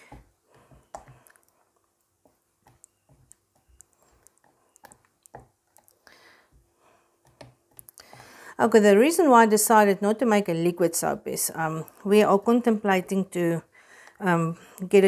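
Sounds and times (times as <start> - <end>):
spatula stirring thick batter: 0.0 - 8.4.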